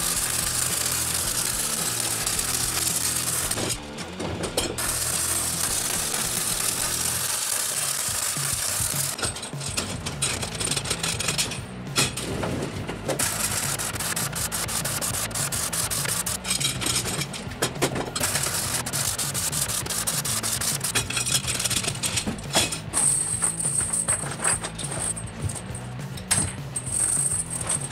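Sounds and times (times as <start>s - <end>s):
arc welding crackling: 0.0s - 4.2s, 4.8s - 9.2s, 13.2s - 17.3s, 18.1s - 22.2s.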